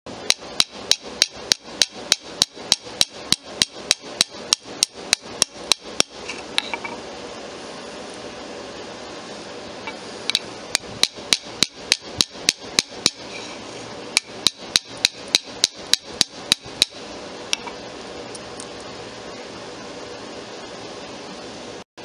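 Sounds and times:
small hammer tapping metal: 0:00.3 - 0:07.0, 0:10.3 - 0:13.3, 0:14.2 - 0:17.0.

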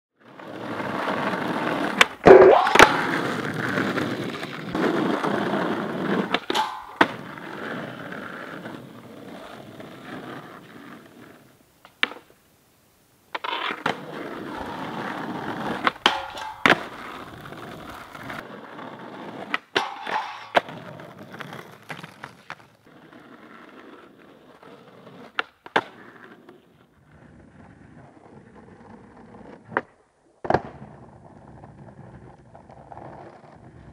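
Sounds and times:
skateboard trucks grinding a rail: 0:00.2 - 0:12.4, 0:13.3 - 0:33.9
skateboard wheels rolling on asphalt: 0:00.2 - 0:33.9
skateboard clacks: 0:00.3 - 0:12.4, 0:13.3 - 0:26.9, 0:28.4 - 0:33.9.

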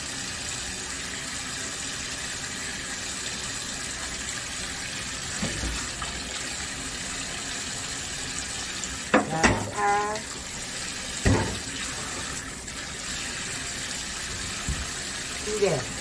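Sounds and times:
kitchen tap running: 0:00.0 - 0:16.0
water splashing into metal bowl: 0:11.2 - 0:12.2.

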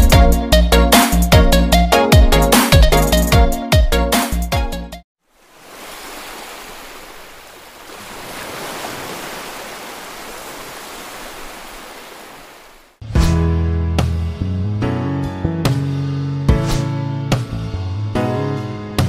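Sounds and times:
waves washing onto beach: 0:05.3 - 0:13.0.

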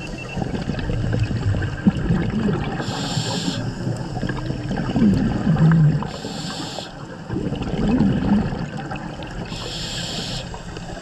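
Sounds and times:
bubbles exhaled underwater: 0:00.0 - 0:11.0
hissing regulator inhale: 0:02.8 - 0:04.2, 0:06.0 - 0:07.1, 0:09.5 - 0:11.0.

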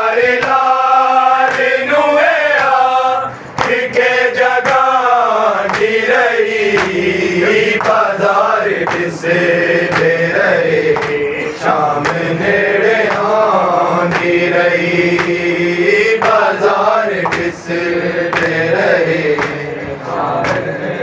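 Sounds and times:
men chanting a lament in unison: 0:00.0 - 0:21.0
hands slapping chests: 0:01.4 - 0:01.8, 0:03.6 - 0:03.8, 0:05.6 - 0:06.0, 0:06.7 - 0:07.0, 0:07.7 - 0:08.1, 0:08.8 - 0:09.2, 0:09.8 - 0:12.4, 0:13.0 - 0:13.4, 0:14.0 - 0:14.5, 0:15.1 - 0:15.5, 0:16.1 - 0:17.6, 0:18.3 - 0:19.7, 0:20.4 - 0:20.7.

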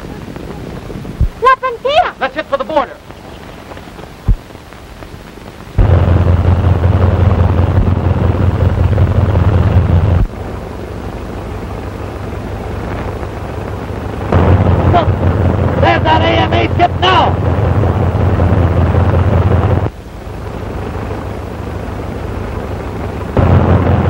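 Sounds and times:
biplane engine drone: 0:05.8 - 0:24.0.

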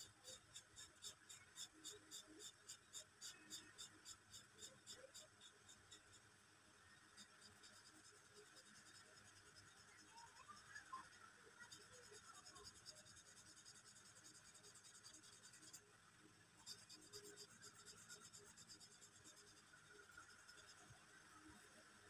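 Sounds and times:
marker pen scratching on paper: 0:11.6 - 0:15.8, 0:16.6 - 0:20.8.

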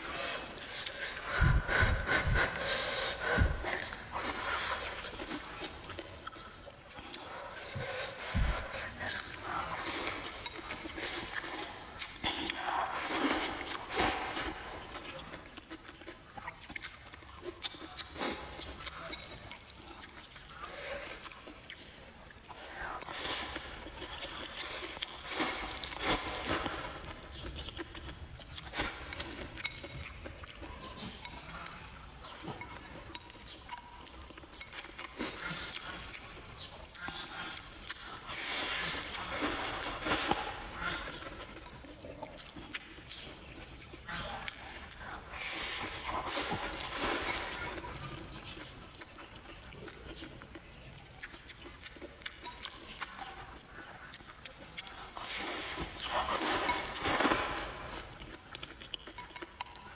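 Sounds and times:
nasal breathing: 0:00.0 - 0:14.9
noodles slurping and chewing: 0:00.0 - 0:59.9.

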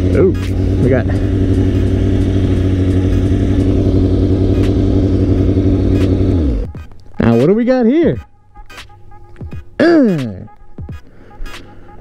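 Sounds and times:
motorcycle engine running: 0:00.0 - 0:07.4.

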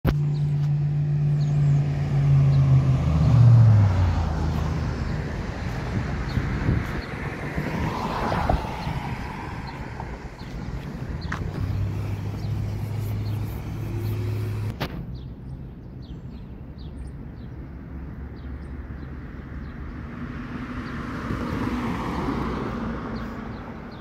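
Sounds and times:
car engine hum passing: 0:00.1 - 0:16.1, 0:16.9 - 0:24.0
car tyre noise: 0:03.1 - 0:15.0.

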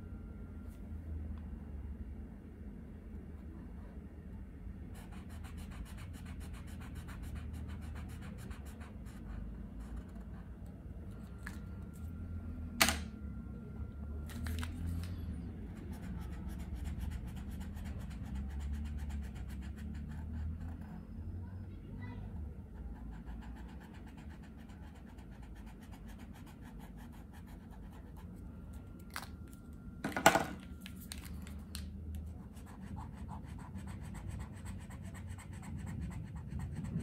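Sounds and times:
marker scratching on paper: 0:05.0 - 0:10.4, 0:15.7 - 0:20.8, 0:32.4 - 0:37.0.

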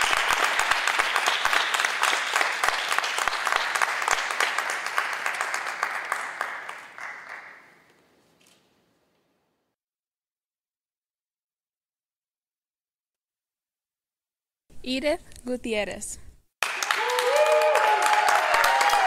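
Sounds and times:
audience applauding: 0:00.0 - 0:07.9, 0:16.6 - 0:19.0.

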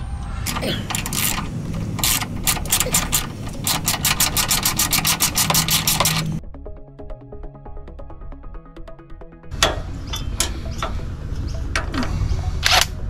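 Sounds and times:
metal scraping: 0:00.0 - 0:06.4
ratchet wrench clicking: 0:00.5 - 0:06.4.

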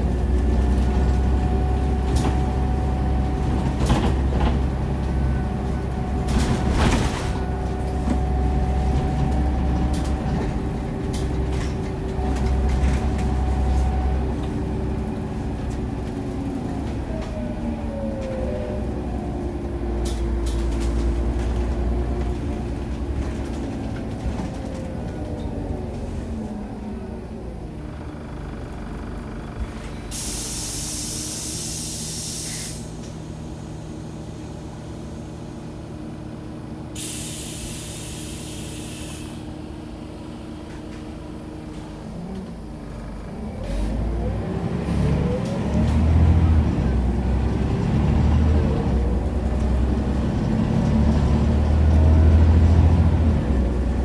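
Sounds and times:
bus engine: 0:00.0 - 0:54.0
compressed air hiss: 0:30.1 - 0:33.0, 0:37.0 - 0:39.5.

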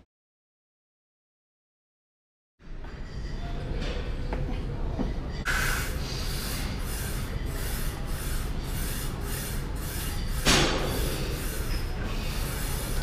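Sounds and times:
gym room noise: 0:02.6 - 0:13.0.

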